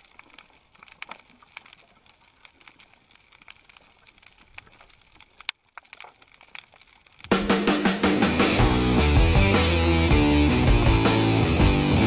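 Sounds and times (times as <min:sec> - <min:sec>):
underwater crackle of clicks: 0:00.0 - 0:07.4.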